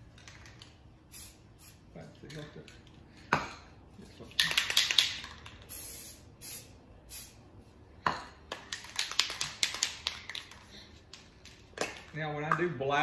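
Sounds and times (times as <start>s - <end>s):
spray can ball rattling: 0.0s - 2.5s, 4.2s - 7.4s, 8.6s - 12.2s
spray paint hissing: 1.1s - 1.9s, 4.4s - 7.5s.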